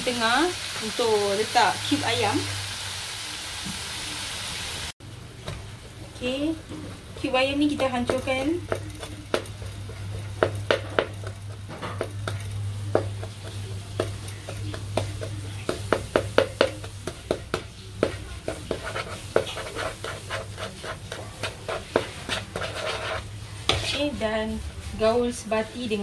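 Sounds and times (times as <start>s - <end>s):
chicken sizzling faintly: 0.0s - 26.0s
spatula scraping on a pan: 7.2s - 24.2s.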